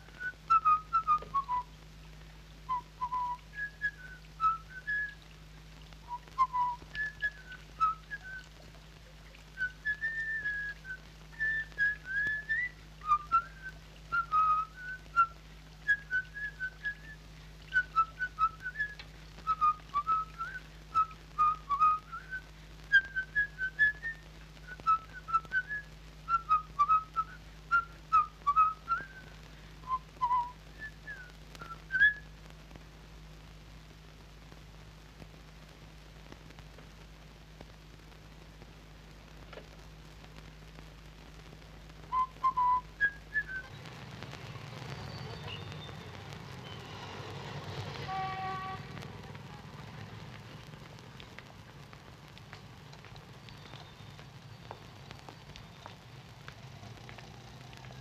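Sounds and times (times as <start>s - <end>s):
person whistling a tune: 2.7s - 5.1s, 6.2s - 8.4s, 29.9s - 32.2s, 42.2s - 43.7s.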